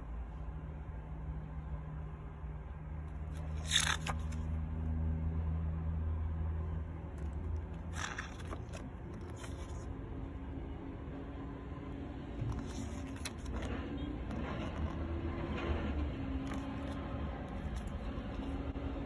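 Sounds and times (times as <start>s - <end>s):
booklet pages turning: 3.1s - 4.8s, 7.0s - 10.0s, 12.4s - 18.8s.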